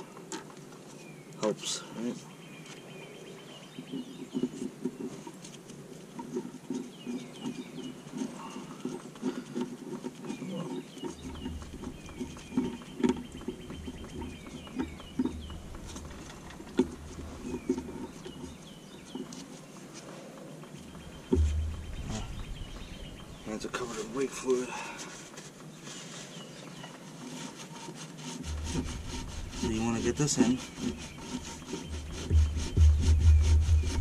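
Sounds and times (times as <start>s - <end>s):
small birds chirping: 0.0s - 34.0s
sharp metal knocks: 21.2s - 23.4s.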